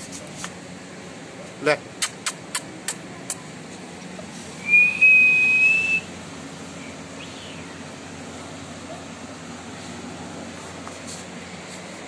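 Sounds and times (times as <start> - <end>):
person whistling high note: 4.6 - 6.1.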